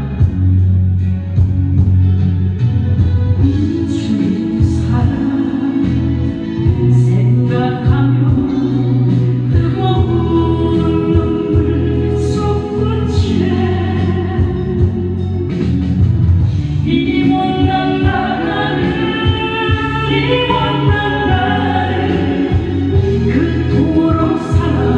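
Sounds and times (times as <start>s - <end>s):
instrumental accompaniment: 0.0s - 24.9s
woman singing into microphone: 3.4s - 15.7s, 16.7s - 24.9s.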